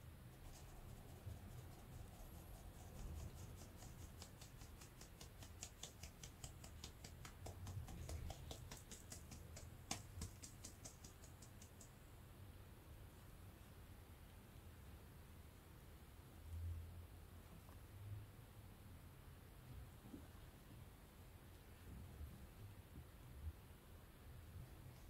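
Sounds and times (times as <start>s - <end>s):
sieve tapping light ticks: 2.8s - 12.0s.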